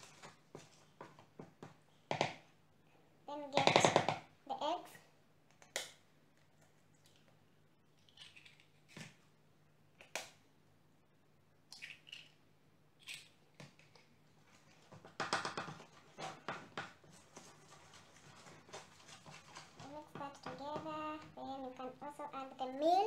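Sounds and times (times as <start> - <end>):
clattering and rustling in bowl: 14.5 - 21.7.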